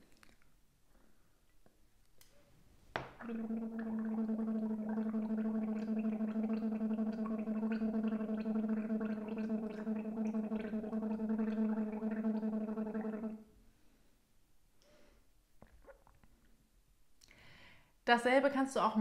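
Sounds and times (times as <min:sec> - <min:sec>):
woman gargling with voiced tone: 0:03.2 - 0:13.4.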